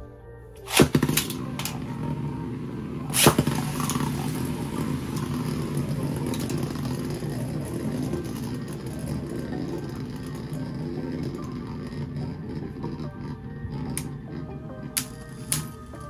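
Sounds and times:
spinning tops clashing: 0.6 - 13.0, 13.7 - 16.0
spinning tops whirring: 0.6 - 16.0
spinning tops clattering onto floor: 0.7 - 2.3, 3.1 - 13.0, 13.7 - 16.0.

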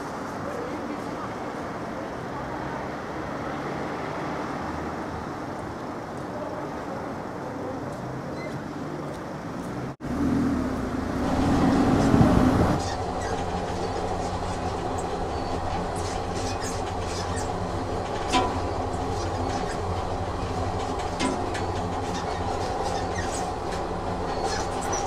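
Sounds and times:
train running on rails: 0.0 - 8.2, 9.0 - 25.0
car road noise: 8.0 - 25.0.

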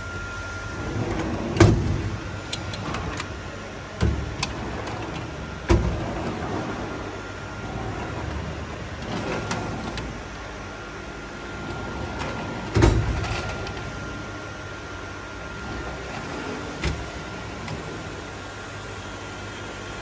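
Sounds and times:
steady hum: 0.0 - 20.0
metal drawers sliding: 0.7 - 10.3, 11.5 - 14.3, 15.6 - 18.2
drawer clunk: 12.2 - 13.8.

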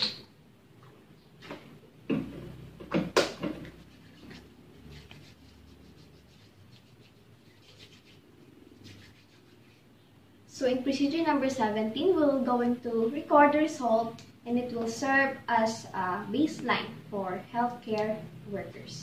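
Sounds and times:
sharp knocks and snaps: 1.4 - 4.4
hands rubbing together: 3.6 - 9.9.

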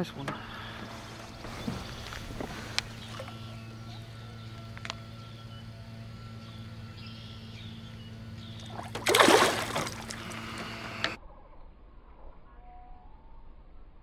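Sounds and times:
steady low hum: 0.0 - 14.0
fish splashing in water: 8.6 - 10.7.

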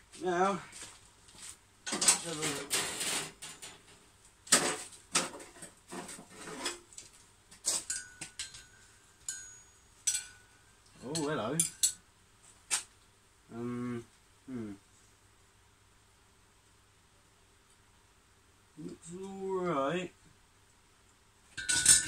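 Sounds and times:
metal clanking against anvil: 7.9 - 10.5, 11.1 - 12.0, 21.6 - 22.0.

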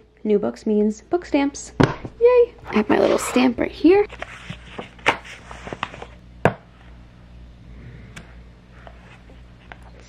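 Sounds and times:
page rustling: 4.1 - 6.2.

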